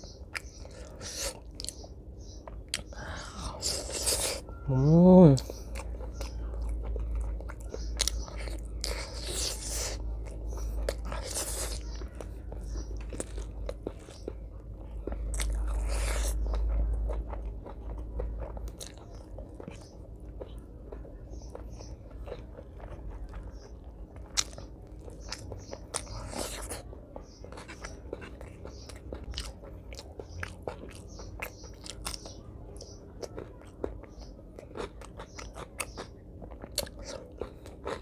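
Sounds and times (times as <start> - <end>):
wet chewing and mouth smacks: 0.0 - 4.6, 5.4 - 38.0.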